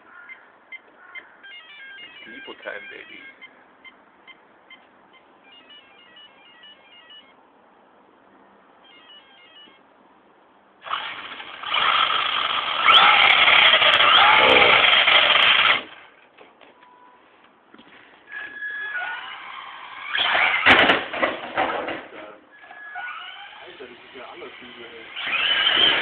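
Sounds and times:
electric motor whirring: 10.8 - 16.0, 22.7 - 26.0.

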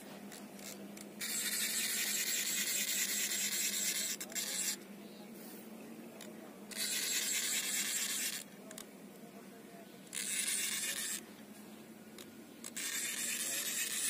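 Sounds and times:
fishing reel whirring: 0.6 - 4.8, 6.7 - 8.5, 10.1 - 11.2, 12.6 - 14.0.

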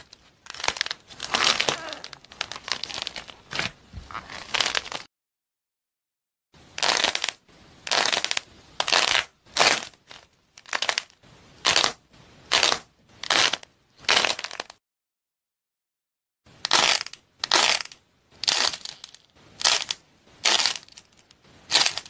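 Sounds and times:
hard shell cracking and crunching: 16.7 - 22.0.

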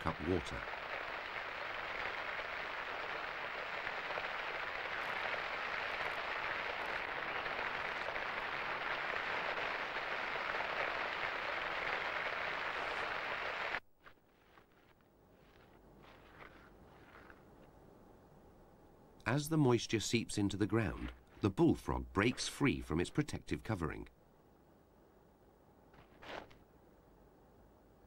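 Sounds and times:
steady rain falling: 0.0 - 13.8.

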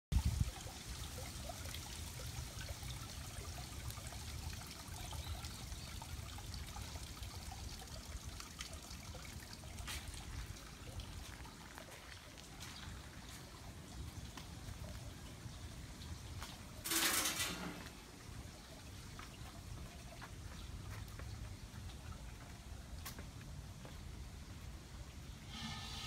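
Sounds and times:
water trickling into basin: 0.1 - 16.9.

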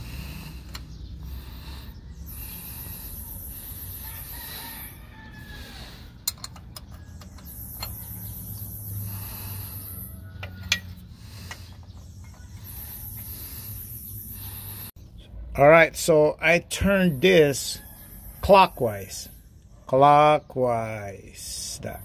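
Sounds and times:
wrench clicking on metal: 6.2 - 8.1, 10.4 - 11.6.

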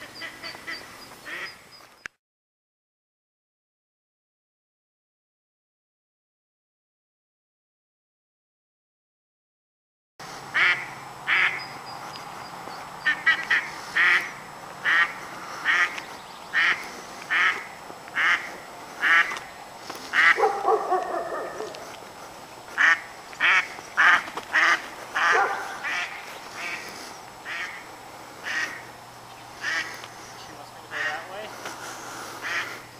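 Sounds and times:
duck quacking: 0.0 - 1.6, 10.5 - 11.7, 13.0 - 19.5, 20.1 - 21.8, 22.8 - 28.9, 29.6 - 30.0, 30.8 - 31.5, 32.3 - 32.9.

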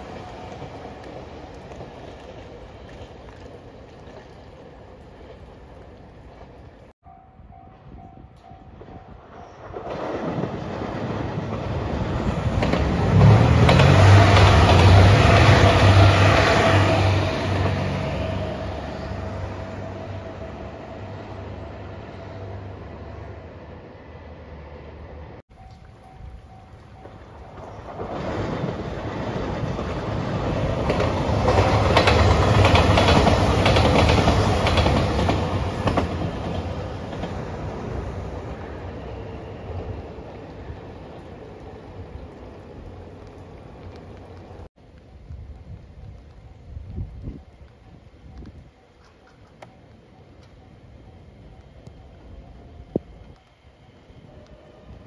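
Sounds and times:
diesel railcar engine hum: 0.0 - 55.0
wheels clacking over rail joints: 8.8 - 19.2, 25.6 - 44.6.

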